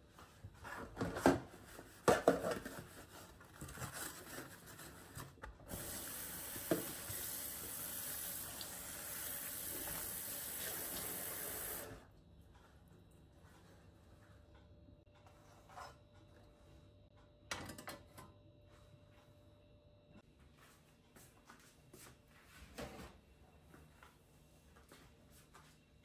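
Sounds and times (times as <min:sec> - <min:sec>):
tap water running: 0:05.6 - 0:12.1.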